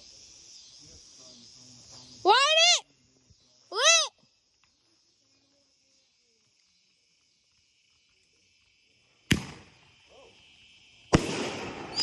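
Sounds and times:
sharp firework bangs: 9.3s - 9.8s, 11.1s - 12.0s.

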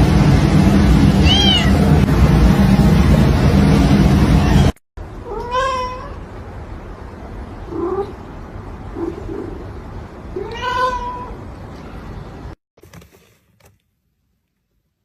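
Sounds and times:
loud rushing noise: 0.0s - 4.8s
cat meowing: 1.2s - 1.8s, 4.4s - 6.2s, 10.4s - 11.4s.

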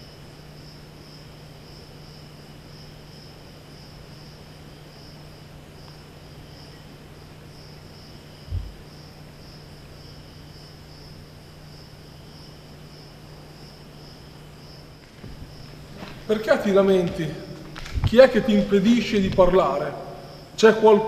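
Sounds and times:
crickets chirping: 0.0s - 21.0s
dull thump: 8.4s - 8.8s
low hum: 8.4s - 9.2s.

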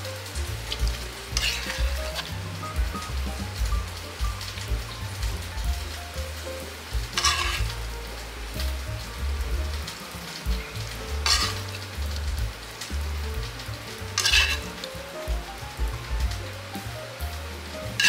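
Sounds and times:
food sizzling: 0.0s - 18.0s
quiet background music: 0.0s - 18.0s
metal spoon scraping a wok: 1.4s - 2.3s, 7.2s - 7.7s, 11.2s - 11.6s, 14.2s - 14.7s.

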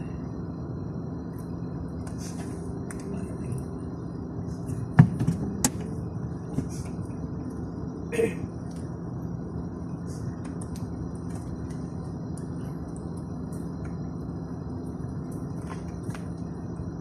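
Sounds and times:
low rumble of idling traffic: 0.0s - 17.0s.

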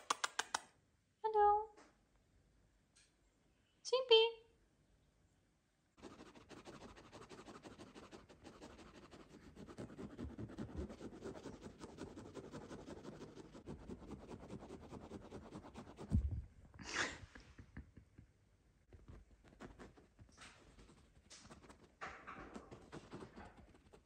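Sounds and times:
fingers scratching upholstery: 6.0s - 16.2s, 19.1s - 24.0s
dull thump: 16.0s - 16.6s.

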